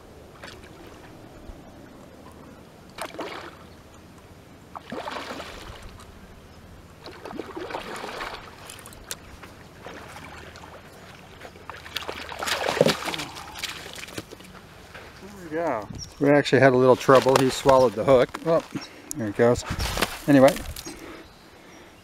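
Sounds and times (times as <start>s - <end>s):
fish thrashing and splashing: 4.8s - 5.9s, 7.0s - 14.5s.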